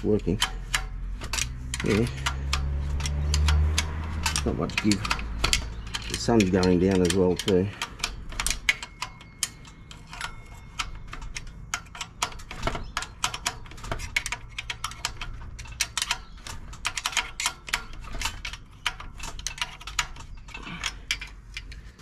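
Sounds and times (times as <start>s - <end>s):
hand tool clicking: 0.0s - 21.8s.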